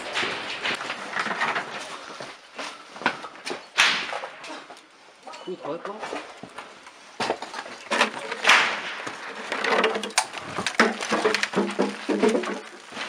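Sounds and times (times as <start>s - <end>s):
sharp cracks and knocks: 0.0s - 4.9s, 5.9s - 13.0s.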